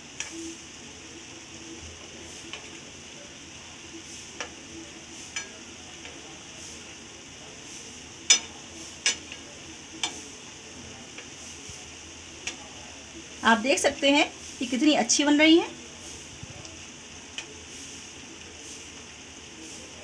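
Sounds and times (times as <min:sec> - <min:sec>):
deep-frying sizzle in hot oil: 0:00.0 - 0:20.0
metal tongs clicking on pan: 0:05.3 - 0:06.2, 0:08.3 - 0:09.4, 0:10.0 - 0:10.2.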